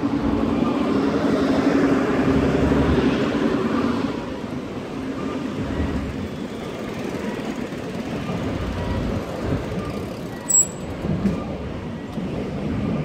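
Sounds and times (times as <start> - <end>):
traffic rumble: 0.0 - 13.0
sharp high-pitched squeak: 10.3 - 10.9.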